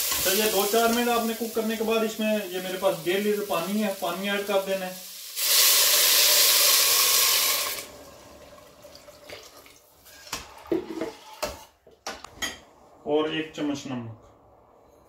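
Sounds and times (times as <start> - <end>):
water pouring into hot pot: 5.0 - 9.9.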